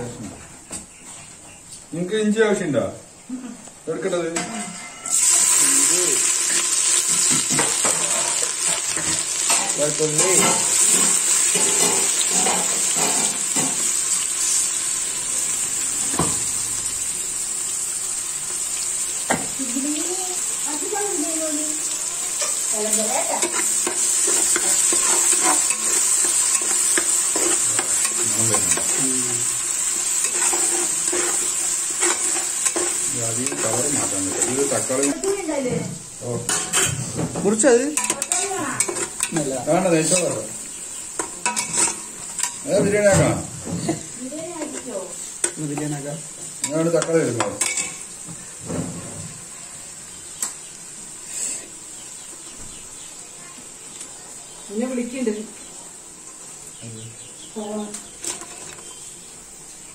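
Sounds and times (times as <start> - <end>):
spices sizzling in hot oil: 0.9 - 59.9
spatula scraping pot: 23.3 - 35.3, 41.2 - 42.6
metal clinking on pot: 38.0 - 39.5.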